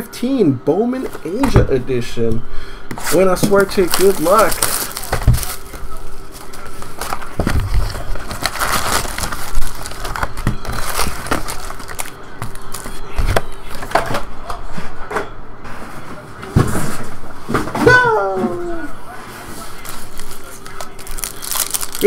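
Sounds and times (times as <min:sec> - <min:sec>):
faint steady hum: 0:00.0 - 0:22.0
foil wrappers crinkling: 0:03.0 - 0:13.8, 0:19.4 - 0:22.0.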